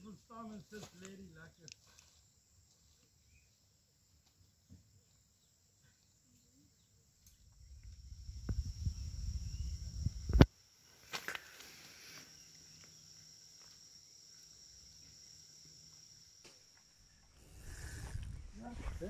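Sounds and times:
high-pitched insect chirring: 6.3s - 18.7s
low rumble: 7.3s - 10.5s.

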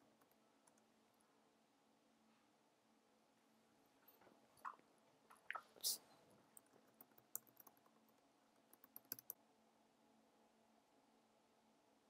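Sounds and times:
keyboard typing: 6.5s - 9.4s.

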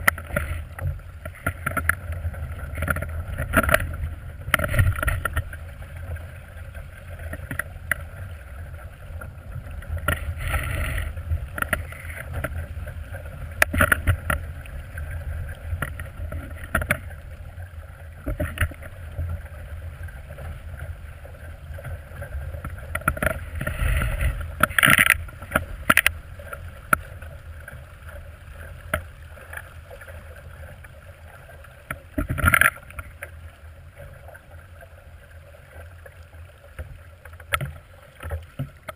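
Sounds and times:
wind rumble on microphone: 0.0s - 30.6s
water splashing against hull: 0.0s - 38.9s.

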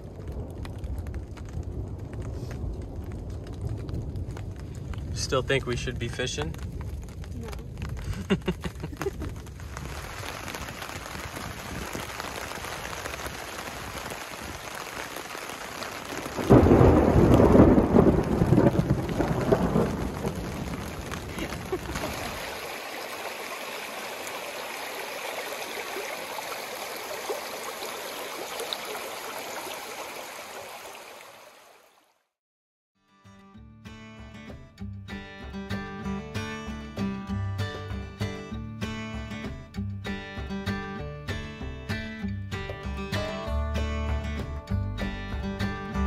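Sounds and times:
thunder crack and rumble: 0.0s - 22.5s
steady rain: 0.0s - 32.0s.

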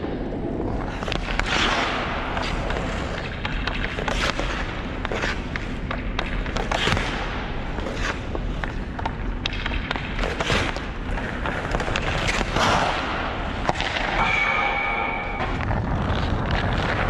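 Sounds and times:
skates carving on ice: 0.2s - 17.0s
skates scraping to a stop: 0.3s - 17.0s
stick tapping puck: 0.8s - 14.3s
sharp crack with ringing tone: 14.0s - 15.6s.

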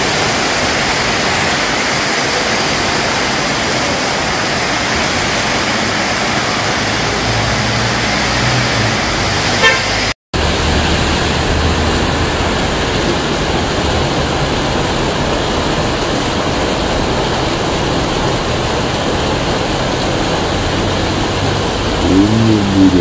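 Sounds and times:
heavy rain falling: 0.0s - 23.0s
short car horn toot: 9.6s - 10.0s.

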